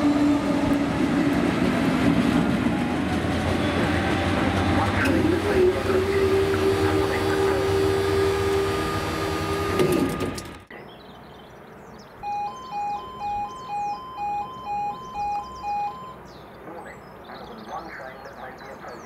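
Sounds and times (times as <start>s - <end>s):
diesel locomotive engine rumble: 0.0s - 10.8s
long steady horn tone: 5.4s - 8.8s
birds chirping: 10.7s - 19.0s
level crossing alarm: 12.2s - 16.3s.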